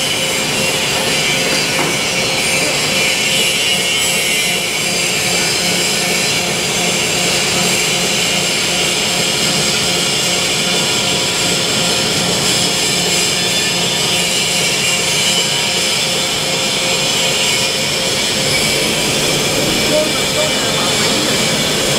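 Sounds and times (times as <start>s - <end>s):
low machinery hum: 5.1s - 21.9s
machinery hiss: 17.0s - 21.9s.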